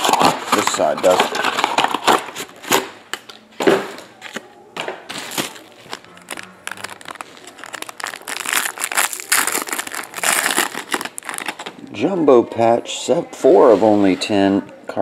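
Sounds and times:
foil wrapper crinkling: 0.0 - 2.9, 5.1 - 11.8.

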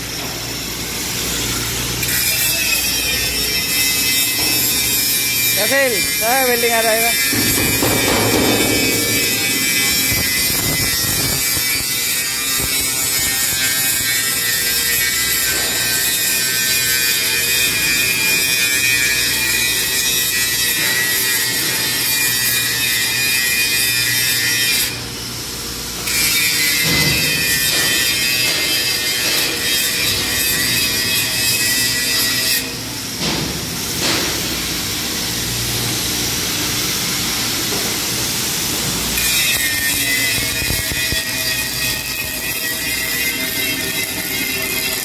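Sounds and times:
angle grinder grinding steel: 2.0 - 17.3, 39.2 - 45.0.

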